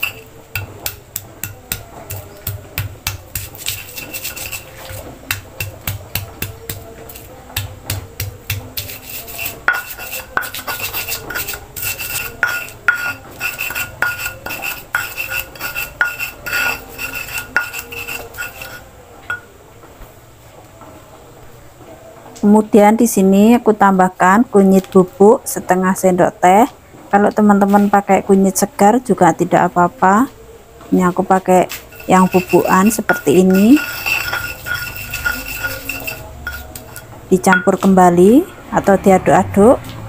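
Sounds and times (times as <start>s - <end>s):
stone pestle grinding in mortar: 0.0s - 19.5s, 31.6s - 38.0s.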